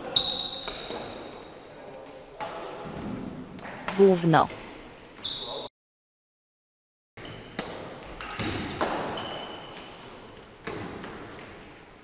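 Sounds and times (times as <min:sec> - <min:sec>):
sneaker squeaks on floor: 0:00.1 - 0:01.5, 0:05.2 - 0:05.7, 0:07.2 - 0:10.1
racket hitting shuttlecock: 0:07.5 - 0:10.0.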